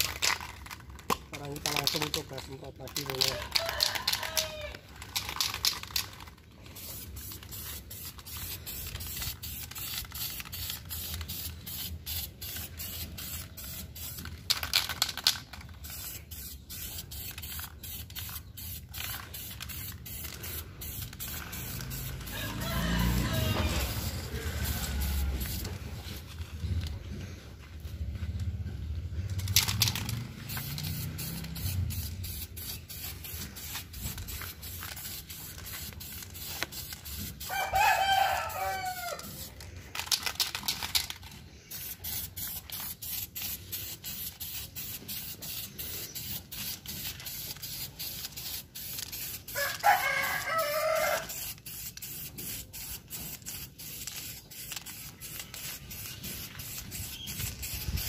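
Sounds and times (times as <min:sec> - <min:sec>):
aerosol spray can hissing: 0:03.0 - 0:26.3, 0:29.4 - 0:58.0
rooster crowing: 0:03.3 - 0:04.8, 0:22.2 - 0:25.6, 0:37.4 - 0:39.5, 0:49.5 - 0:51.4.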